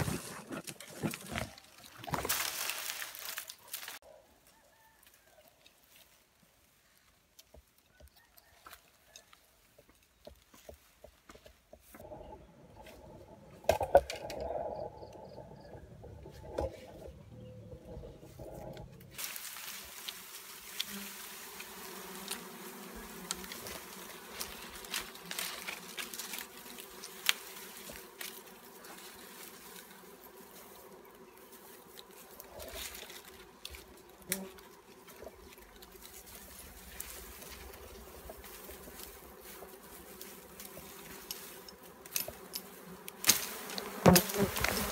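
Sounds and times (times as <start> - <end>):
bees buzzing: 12.0 - 44.9.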